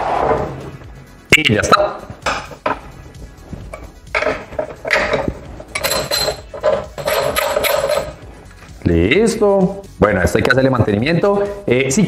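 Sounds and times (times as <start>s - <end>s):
metal parts clinking and knocking: 3.7s - 8.2s.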